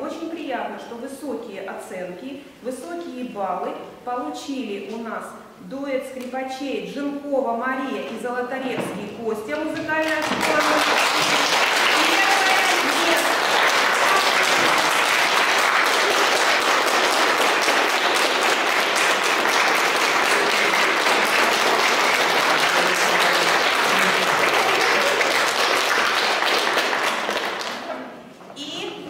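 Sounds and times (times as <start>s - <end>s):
audience applauding: 10.1s - 27.9s.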